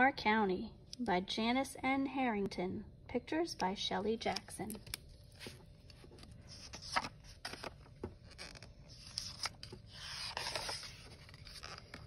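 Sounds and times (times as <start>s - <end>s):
book pages turning: 4.2s - 12.0s
swishing page turn: 5.3s - 12.0s.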